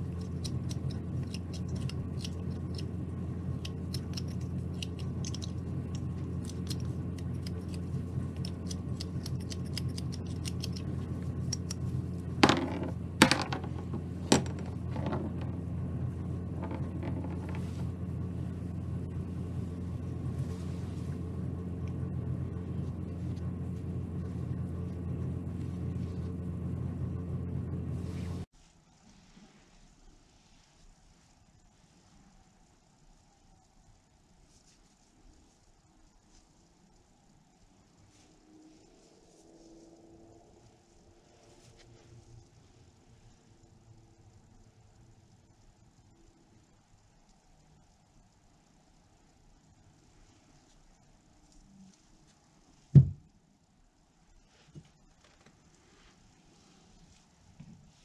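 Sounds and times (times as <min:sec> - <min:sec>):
quiet handling: 0:00.0 - 0:32.4
steady low hum: 0:00.0 - 0:58.0
knife carving wood clicks and scrapes: 0:00.1 - 0:02.9, 0:03.6 - 0:10.9.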